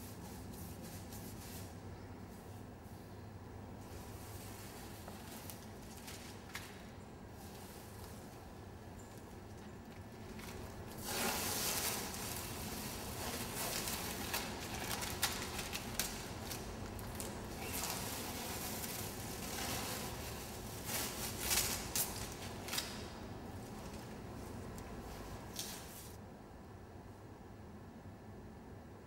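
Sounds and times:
masking tape ripping and crackling: 10.2 - 23.1.

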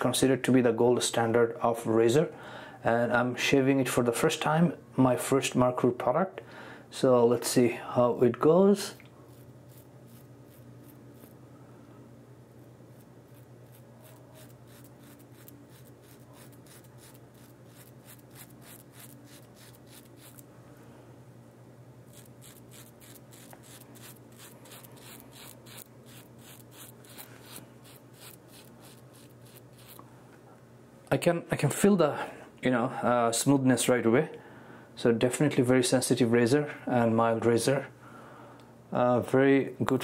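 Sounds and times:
razor scraping stubble: 8.9 - 11.4, 12.6 - 20.5, 22.1 - 30.0.

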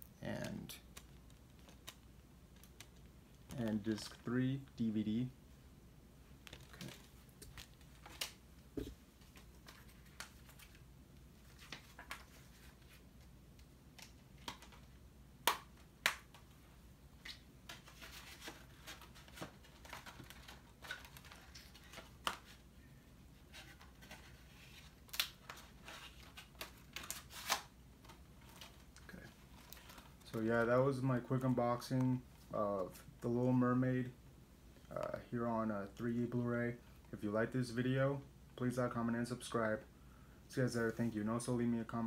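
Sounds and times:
packaging rustling: 6.4 - 10.8, 23.5 - 30.4.

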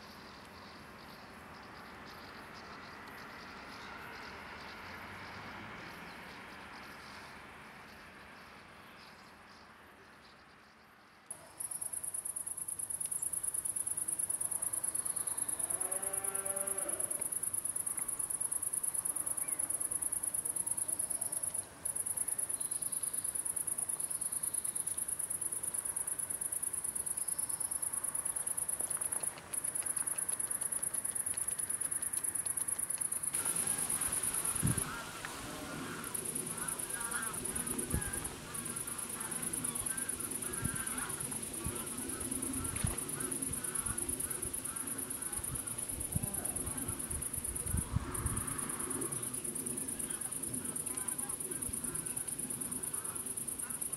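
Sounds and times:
high insect trill: 11.4 - 53.9.

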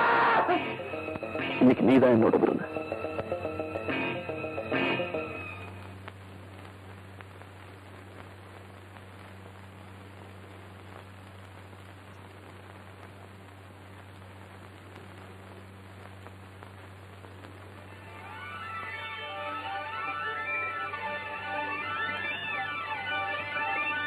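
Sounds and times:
constant low hum: 0.0 - 24.0
steady hiss: 0.0 - 24.0
faint crackles: 5.6 - 24.0.

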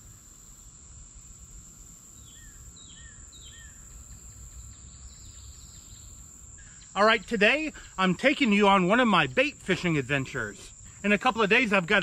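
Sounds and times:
high insect drone: 0.0 - 12.0
bird chirping: 2.2 - 11.2.

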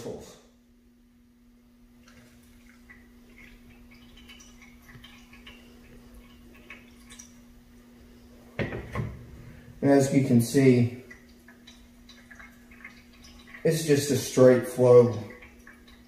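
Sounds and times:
water trickling into metal bowl: 2.1 - 7.6, 9.5 - 16.0.

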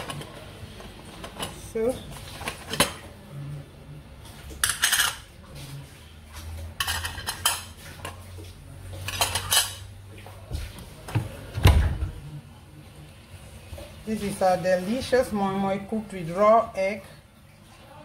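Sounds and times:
metal lids clattering and clinking: 0.0 - 3.1, 4.6 - 5.3, 6.8 - 8.2, 9.0 - 9.8.

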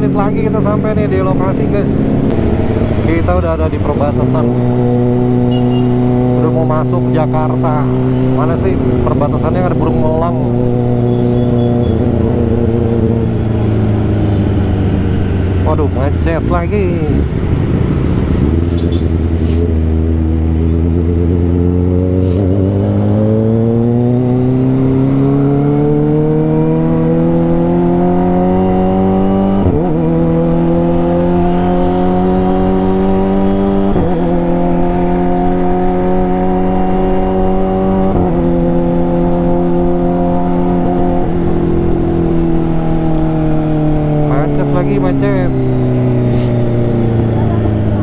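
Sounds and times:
motorcycle engine accelerating: 0.0 - 48.0.

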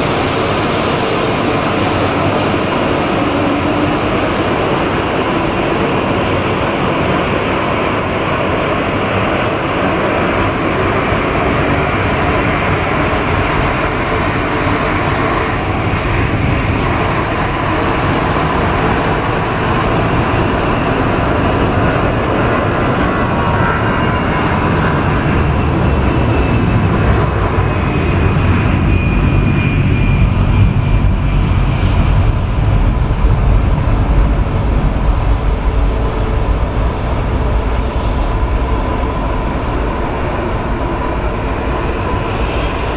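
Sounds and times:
jet engine whine and rush: 0.0 - 42.9
low rumble: 12.2 - 42.9.

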